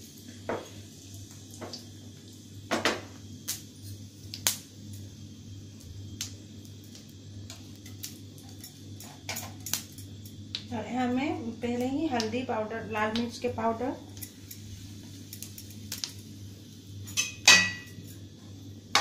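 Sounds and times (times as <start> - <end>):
seeds sizzling in oil: 0.0 - 19.0
oil popping and crackling: 5.8 - 10.9, 14.1 - 16.3.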